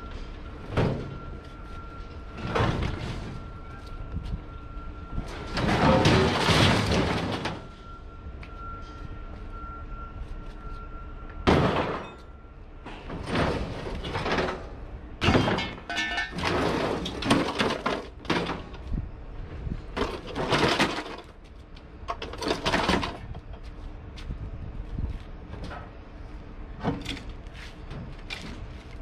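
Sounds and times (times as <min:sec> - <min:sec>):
scrap metal crashing and scraping: 0:05.3 - 0:07.9, 0:11.5 - 0:12.2, 0:13.0 - 0:18.7, 0:20.0 - 0:21.4.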